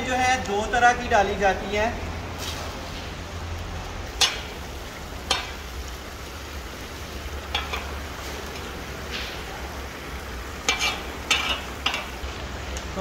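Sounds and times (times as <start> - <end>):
hiss of cauldron cooking: 0.0 - 13.0
metal skimmer scraping pot: 7.5 - 8.0, 10.6 - 12.2.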